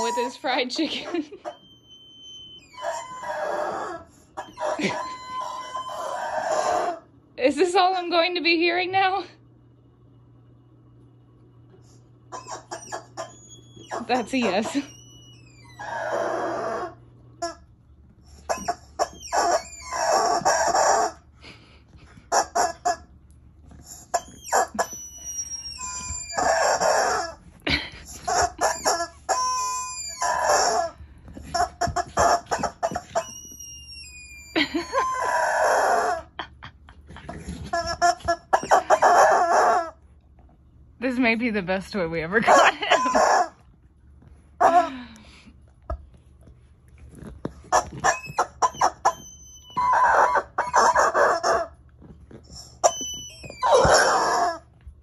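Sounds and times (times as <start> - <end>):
squeaky dog toy squeaking: 0.0 - 8.0, 12.3 - 17.7, 18.3 - 21.2, 22.2 - 23.1, 23.7 - 36.5, 37.3 - 40.0, 42.3 - 43.7, 47.2 - 54.7.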